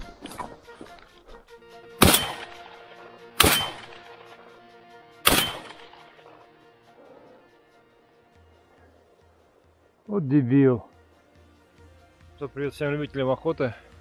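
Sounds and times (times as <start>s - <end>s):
shotgun shots with echo: 2.0s - 2.7s, 3.4s - 4.1s, 5.2s - 6.1s.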